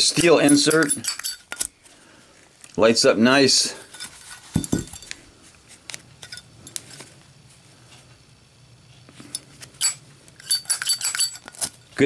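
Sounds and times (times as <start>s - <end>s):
light metallic clicks and clinks: 0.1s - 1.7s, 3.8s - 5.2s, 6.2s - 6.9s, 9.3s - 11.8s.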